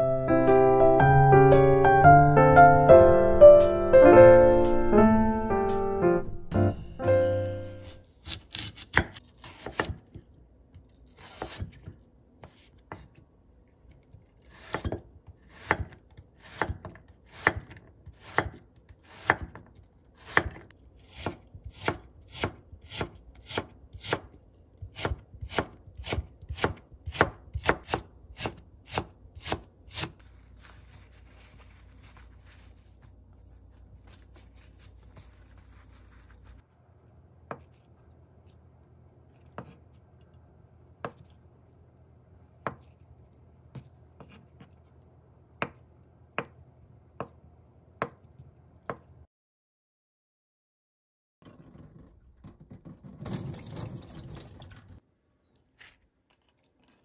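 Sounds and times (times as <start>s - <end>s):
knife chopping on wooden board: 8.2s - 10.2s, 11.2s - 13.2s, 14.3s - 30.2s, 37.5s - 37.8s, 39.5s - 39.9s, 42.6s - 43.0s, 45.6s - 46.6s, 48.0s - 49.1s.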